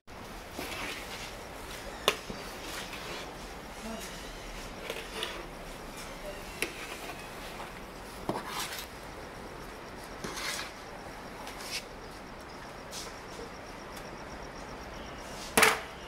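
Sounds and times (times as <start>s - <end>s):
metal plate scraping a cooking pot: 0.6s - 1.3s, 2.0s - 3.4s, 4.5s - 5.6s, 6.3s - 7.7s, 8.3s - 8.9s, 10.2s - 10.7s.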